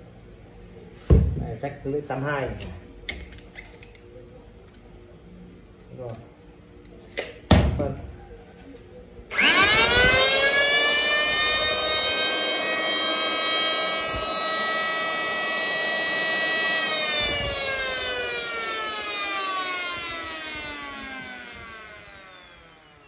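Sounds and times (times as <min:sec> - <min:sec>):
electric planer whining: 0:09.3 - 0:23.0.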